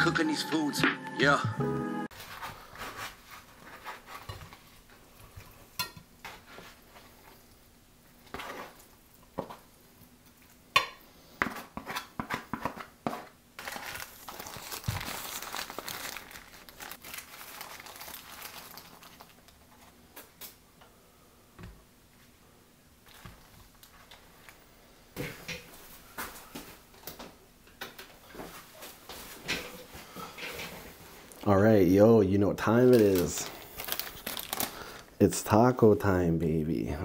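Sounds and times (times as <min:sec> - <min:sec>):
paper wrappers crinkling: 0:13.6 - 0:20.4, 0:23.0 - 0:24.6, 0:32.6 - 0:35.1.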